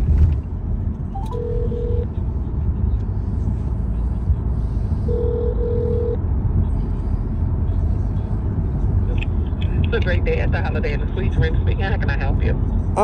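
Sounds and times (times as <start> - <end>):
car road rumble: 0.0 - 13.0
telephone ringback tone: 1.2 - 2.1.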